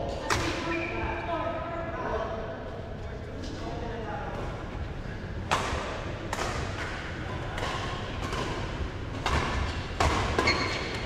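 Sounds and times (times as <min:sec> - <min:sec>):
racket hitting shuttlecock: 0:05.5 - 0:11.0.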